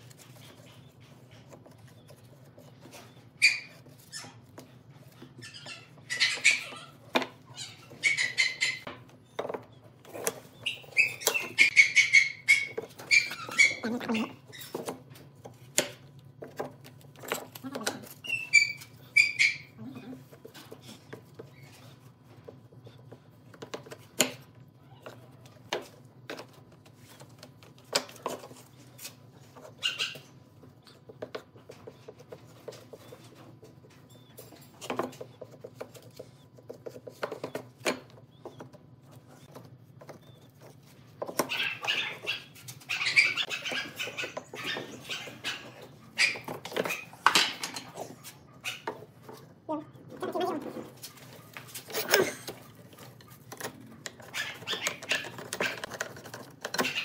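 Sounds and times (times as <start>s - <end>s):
chirping sounds: 32.8s - 49.2s.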